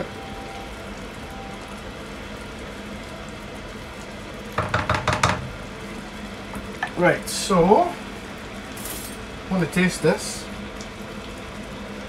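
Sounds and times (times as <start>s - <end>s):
gravy bubbling in a pan: 0.0s - 12.0s.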